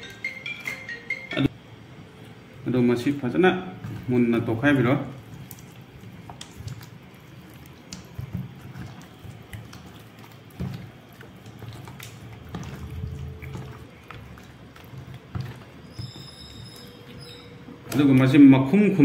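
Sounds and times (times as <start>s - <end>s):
hand squelching meat in marinade: 3.7s - 18.4s.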